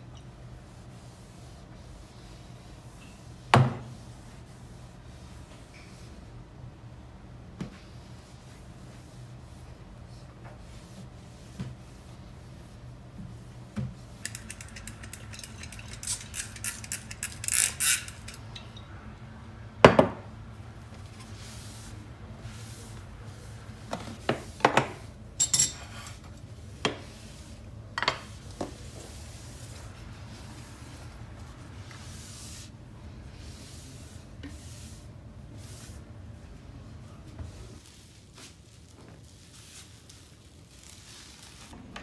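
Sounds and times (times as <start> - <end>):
light knocks and clinks: 25.4 - 26.2.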